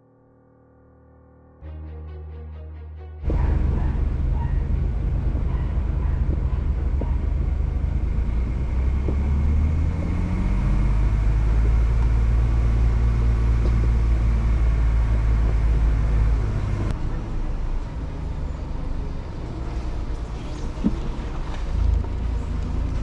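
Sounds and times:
vehicle engine rumbling: 3.2 - 23.0.

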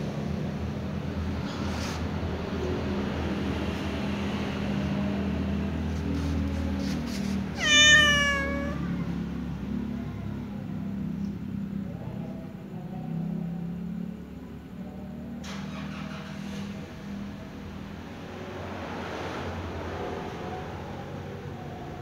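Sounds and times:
kitten meowing: 7.5 - 9.1.

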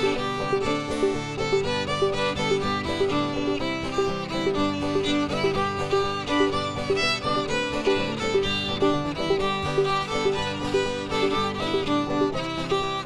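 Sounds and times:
fiddle melody: 0.0 - 13.0
picked banjo: 0.0 - 13.0
strummed acoustic guitar: 0.0 - 13.0.

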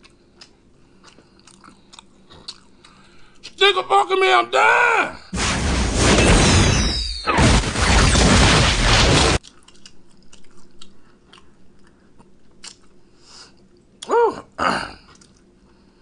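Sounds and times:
harsh hissing noise burst: 5.3 - 9.4
falling whistle: 6.1 - 7.4
mouth clicks and smacks: 9.4 - 13.0.

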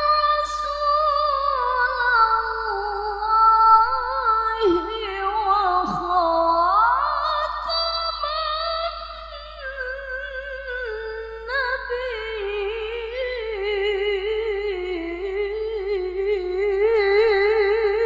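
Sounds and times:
woman reciting melodically: 0.0 - 18.0.

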